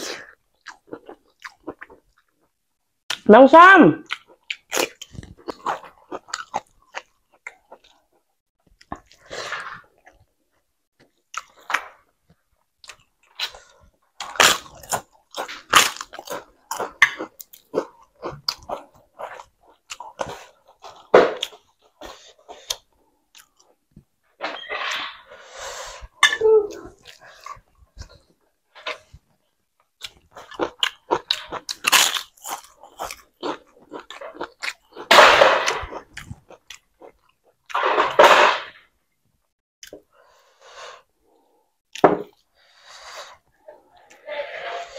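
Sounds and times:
chewing and crunching food: 0:00.0 - 0:03.3, 0:04.0 - 0:24.2, 0:25.8 - 0:38.1.

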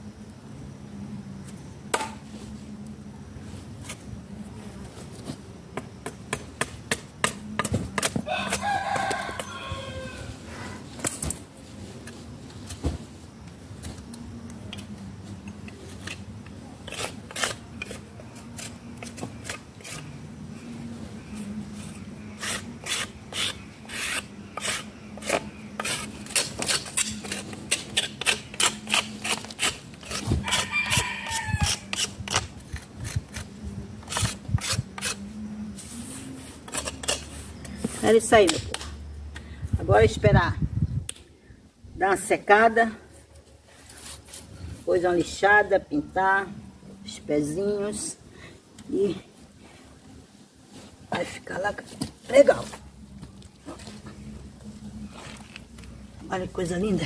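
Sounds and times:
rooster crowing: 0:08.2 - 0:10.9, 0:30.4 - 0:32.0
blade scraping bark off wood: 0:15.7 - 0:20.1, 0:22.4 - 0:35.2.

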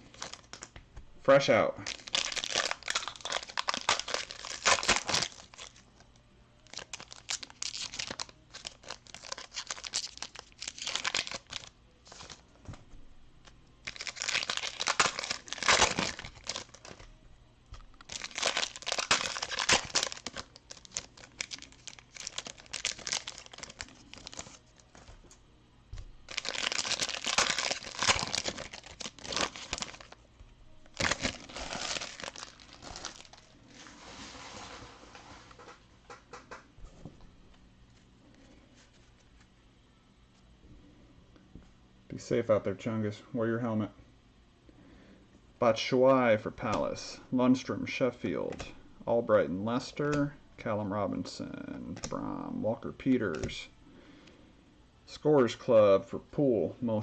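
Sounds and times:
card pack wrappers crinkling and tearing: 0:00.0 - 0:00.7, 0:01.8 - 0:12.4, 0:13.4 - 0:17.1, 0:17.9 - 0:25.2, 0:26.3 - 0:30.2, 0:30.8 - 0:33.8.

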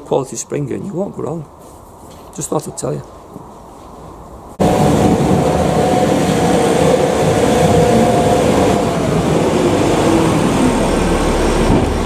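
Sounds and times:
diesel engine running hard: 0:04.6 - 0:12.0.

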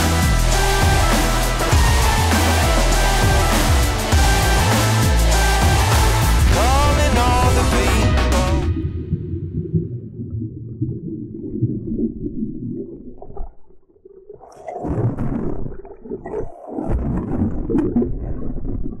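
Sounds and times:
water splashing and sloshing: 0:01.7 - 0:19.0
underwater rumble: 0:06.4 - 0:19.0.

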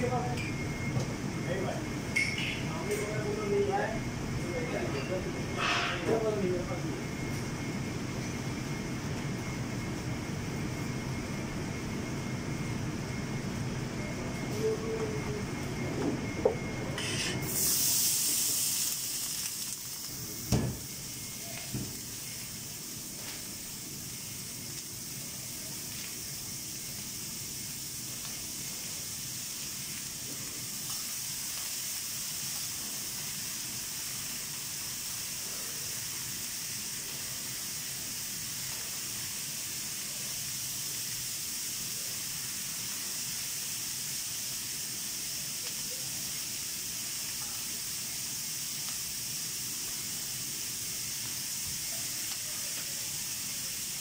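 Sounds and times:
vegetables sizzling on a griddle: 0:17.0 - 0:54.0.

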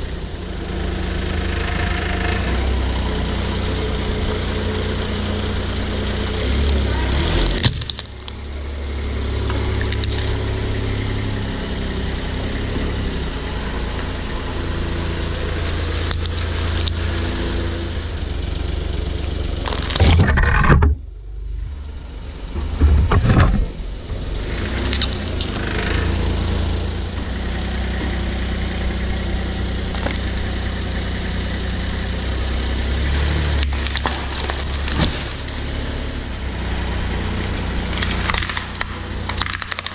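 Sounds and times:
car engine idling: 0:00.0 - 0:39.9
tyre crushing objects on concrete: 0:07.4 - 0:08.4, 0:33.6 - 0:35.6
foil pouch crunching and popping: 0:07.5 - 0:08.4, 0:19.6 - 0:20.2, 0:33.6 - 0:35.5, 0:38.0 - 0:39.9
plastic cracking: 0:07.5 - 0:08.4, 0:09.8 - 0:10.3, 0:19.6 - 0:21.0, 0:29.9 - 0:30.3, 0:33.6 - 0:35.6, 0:37.9 - 0:39.9.

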